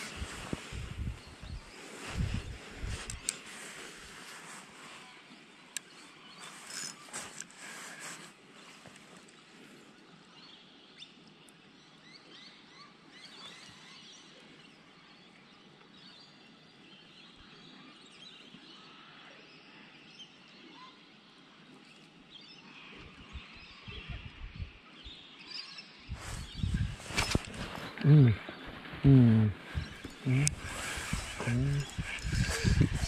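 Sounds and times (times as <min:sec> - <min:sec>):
small birds chirping: 0:00.0 - 0:33.0.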